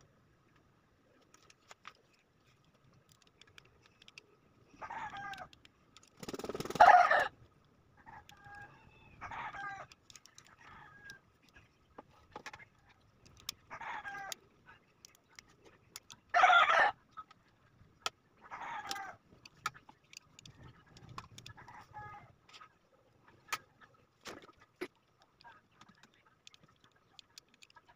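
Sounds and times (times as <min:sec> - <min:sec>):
small parts clicking: 0:01.2 - 0:06.8, 0:09.7 - 0:11.6, 0:13.2 - 0:14.4, 0:15.0 - 0:16.4, 0:18.8 - 0:21.6, 0:25.1 - 0:27.9
chickens calling: 0:06.3 - 0:07.4.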